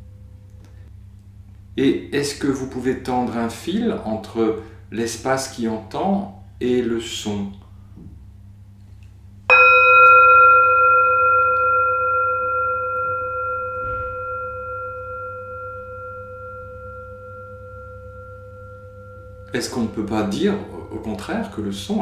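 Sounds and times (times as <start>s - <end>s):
meditation bell ringing: 9.5s - 22.0s.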